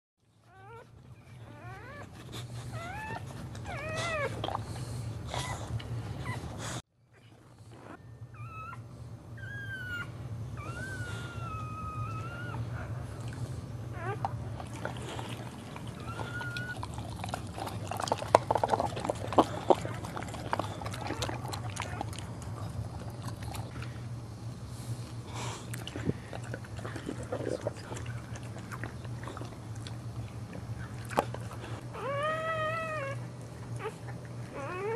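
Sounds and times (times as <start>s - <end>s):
steady low hum: 0.2s - 34.9s
dog whining: 0.3s - 4.6s, 5.3s - 24.0s, 26.3s - 34.9s
dog licking and slurping: 14.5s - 24.0s, 25.7s - 31.7s.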